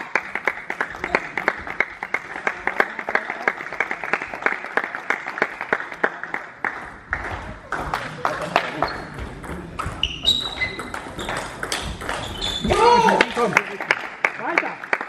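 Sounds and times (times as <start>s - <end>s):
table tennis balls clicking: 8.5s - 12.9s.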